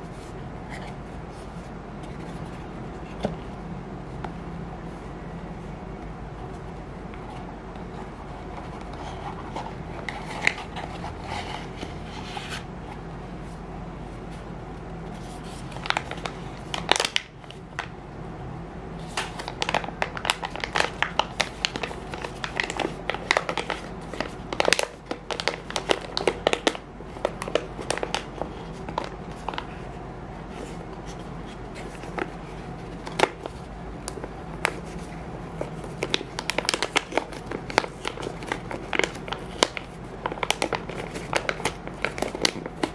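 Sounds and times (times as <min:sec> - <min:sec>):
plastic bag crinkling: 0:15.2 - 0:17.4, 0:19.0 - 0:29.7, 0:30.6 - 0:42.9.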